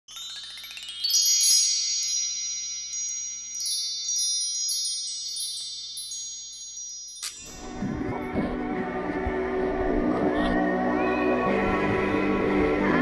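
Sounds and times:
high chime notes: 0.1s - 8.7s
rising sweep of bell tones: 0.1s - 9.4s.

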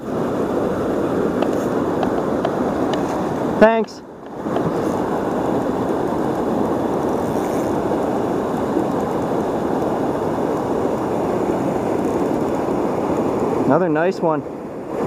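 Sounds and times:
river current over rapids: 0.0s - 15.0s.

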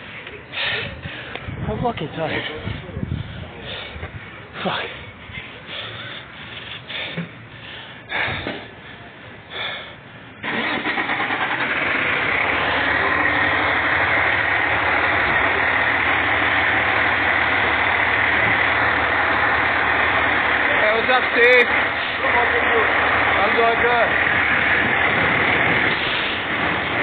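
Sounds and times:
diesel engine starting and idling: 6.9s - 27.0s.

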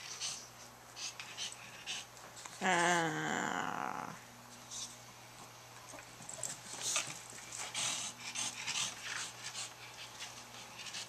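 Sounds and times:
small dog panting: 0.0s - 2.2s, 6.2s - 11.0s.

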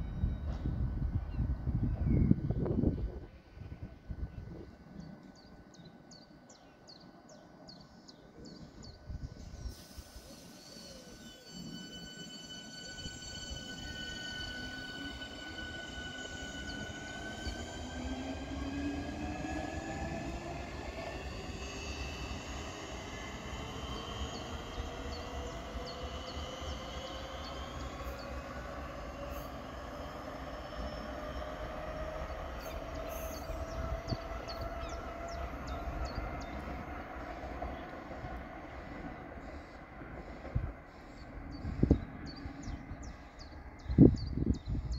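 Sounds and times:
train rumble: 0.0s - 44.9s
electric train motors whining: 9.6s - 39.1s.

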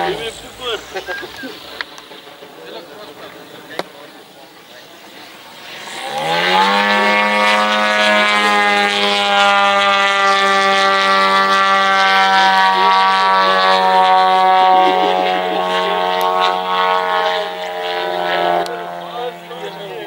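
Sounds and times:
model airplane engine drone: 0.0s - 20.0s.

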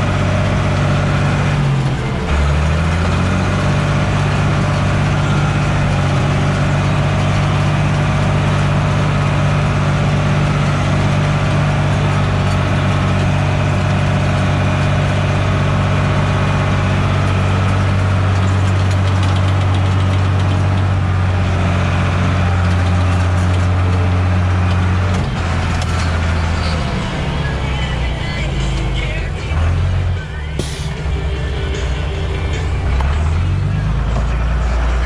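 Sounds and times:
tractor diesel engine running: 0.0s - 35.0s.

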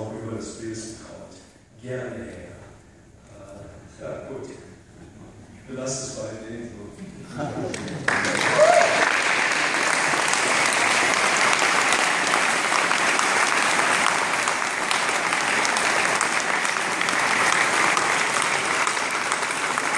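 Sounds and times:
audience applauding: 7.7s - 19.9s.

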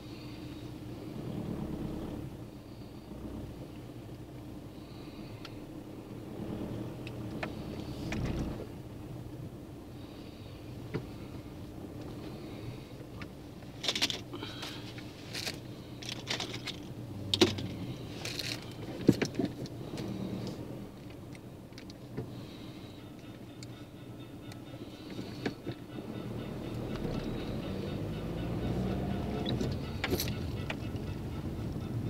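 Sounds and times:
engine and road hum: 0.0s - 32.0s
sharp clicks and rattles: 13.1s - 22.3s, 28.9s - 32.0s.

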